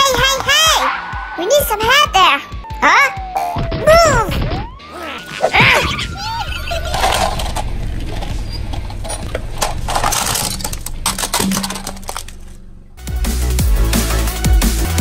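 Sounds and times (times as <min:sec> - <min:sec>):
car humming low: 0:05.9 - 0:13.0.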